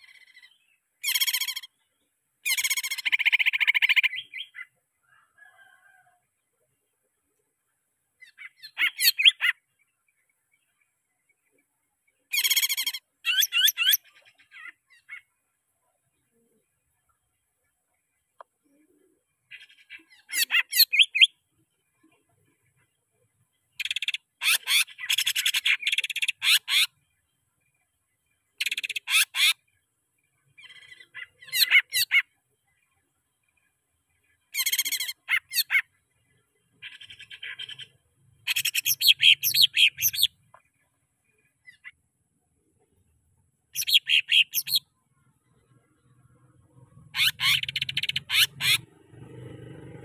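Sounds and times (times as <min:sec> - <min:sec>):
bird chattering song: 0:00.0 - 0:04.8, 0:08.2 - 0:15.4, 0:18.1 - 0:27.9, 0:28.5 - 0:42.0, 0:43.7 - 0:46.4, 0:47.0 - 0:49.0.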